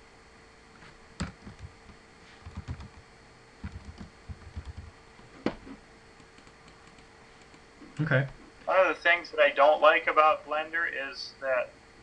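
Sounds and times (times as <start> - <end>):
typing on computer keyboard: 1.2 - 1.7, 2.4 - 3.0, 3.6 - 4.9, 6.2 - 7.6.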